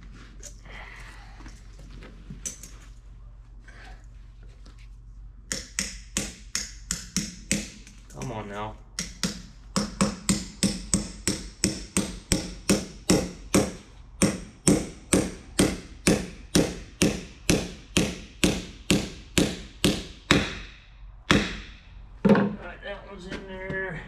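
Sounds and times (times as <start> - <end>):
hammer striking steel: 5.5 - 7.9, 9.0 - 21.9.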